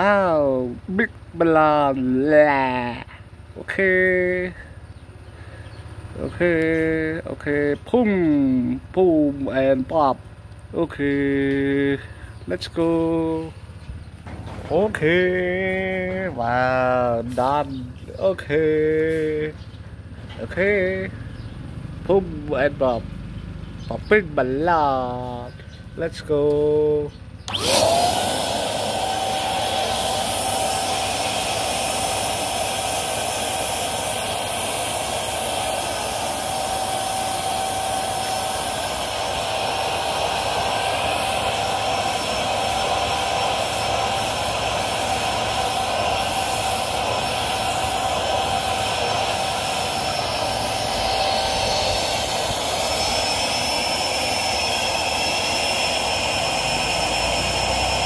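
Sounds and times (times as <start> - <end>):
balloon pump motor whine: 26.9 - 58.0.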